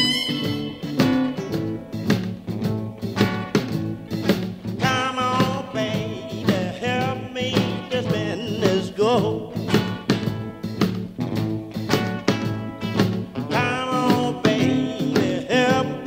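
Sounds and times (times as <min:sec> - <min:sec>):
wavering lead melody: 0:00.0 - 0:01.5
song with steady beat: 0:00.0 - 0:16.0.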